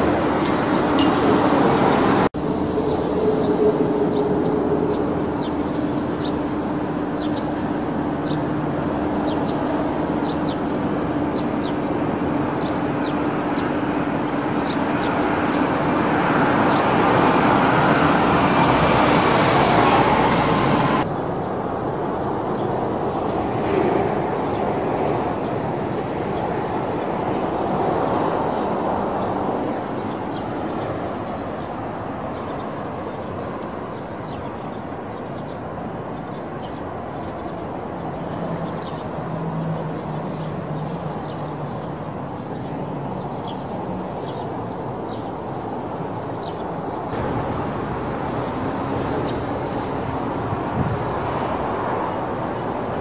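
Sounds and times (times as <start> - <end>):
distant traffic rumble: 0.0 - 53.0
high bird chirps: 47.2 - 47.8.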